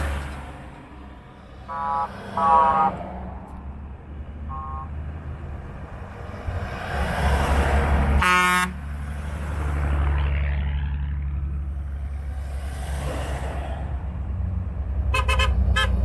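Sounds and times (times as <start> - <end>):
vehicles driving on gravel: 0.0 - 16.0
car horn beeping: 1.7 - 3.0, 4.5 - 5.0, 8.2 - 8.8, 15.1 - 16.0.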